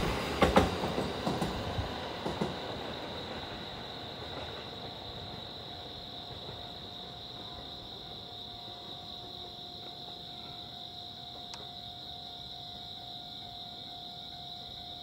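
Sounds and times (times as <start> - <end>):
high-pitched insect chorus: 0.0 - 15.0.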